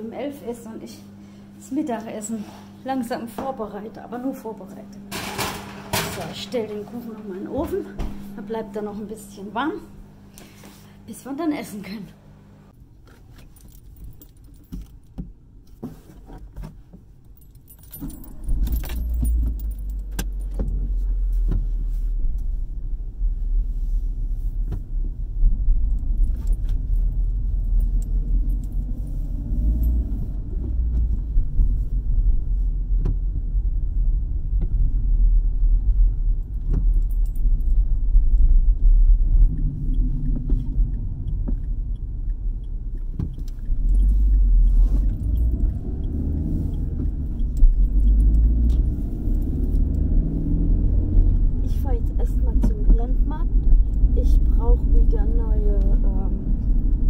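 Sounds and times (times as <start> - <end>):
keys jangling: 13.4 - 15.2, 17.2 - 20.8, 25.9 - 30.2, 36.6 - 38.5, 43.8 - 46.5, 47.2 - 50.1
car engine rumbling: 16.3 - 57.0.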